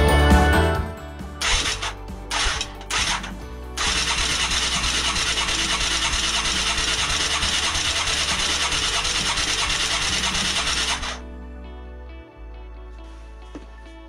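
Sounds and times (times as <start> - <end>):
engine cranking over: 1.4 - 11.2.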